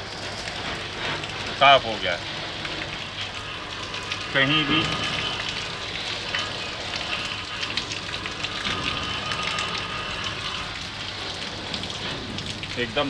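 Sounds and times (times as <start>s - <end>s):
water splashing onto ground: 0.0s - 13.0s.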